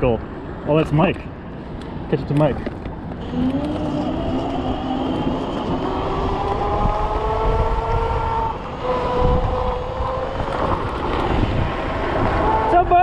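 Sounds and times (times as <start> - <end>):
wind rumbling on microphone: 2.4 - 13.0
electric scooter motor whining: 3.2 - 12.9.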